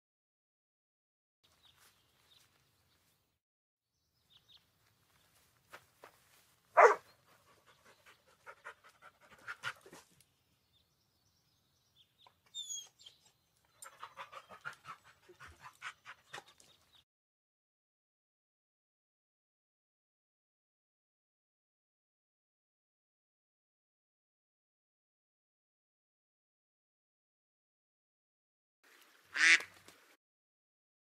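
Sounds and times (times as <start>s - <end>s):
dog barking: 6.8s - 7.1s
dog panting: 7.3s - 10.0s, 13.8s - 16.8s.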